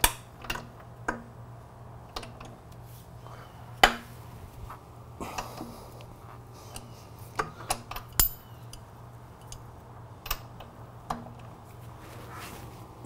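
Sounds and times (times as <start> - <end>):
metal tool clicks: 6.7 - 11.2.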